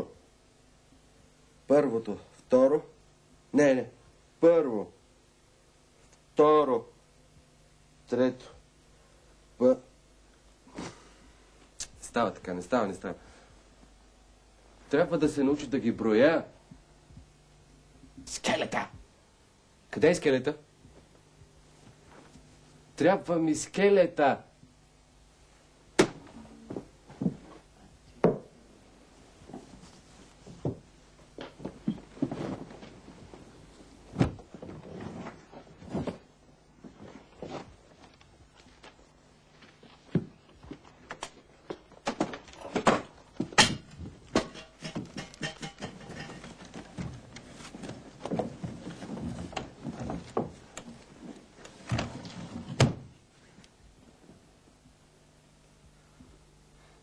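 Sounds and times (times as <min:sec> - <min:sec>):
knocks and thuds of objects: 0:26.0 - 0:27.5, 0:34.1 - 0:34.8, 0:41.7 - 0:50.6
shuffling and handling: 0:29.0 - 0:52.8.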